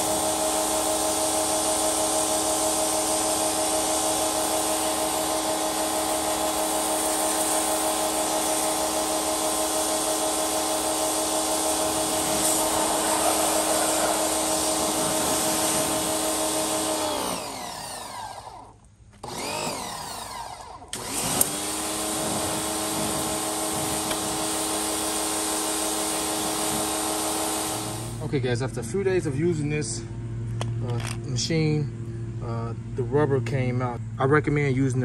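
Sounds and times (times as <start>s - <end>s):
water jet hissing: 0.0s - 17.9s, 21.5s - 28.3s
pressure washer motor and pump: 0.0s - 28.4s.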